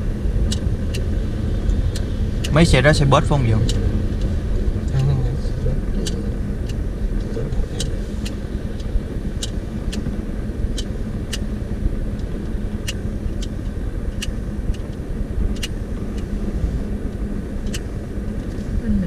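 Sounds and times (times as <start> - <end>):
car cabin road rumble: 0.0 - 19.0
light sharp ticks: 0.5 - 2.7, 3.6 - 5.2, 6.0 - 11.5, 12.1 - 16.3, 17.1 - 18.6.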